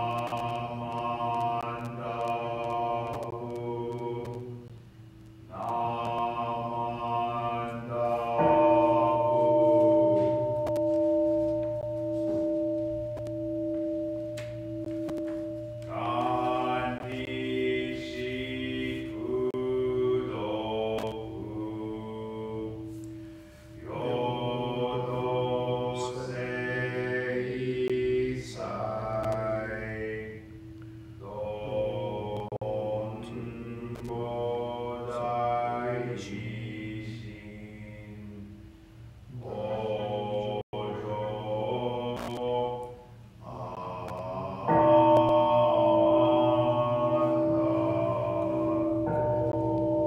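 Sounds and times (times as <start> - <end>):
chanting on steady pitch: 0.0 - 50.0.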